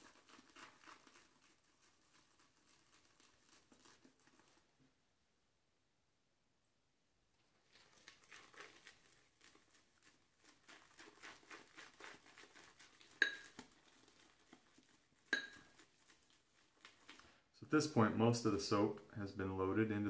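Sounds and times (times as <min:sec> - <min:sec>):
shaving brush lathering in bowl: 0:00.0 - 0:04.8, 0:07.6 - 0:19.9
brush clinking against bowl: 0:13.0 - 0:13.7, 0:15.2 - 0:15.9.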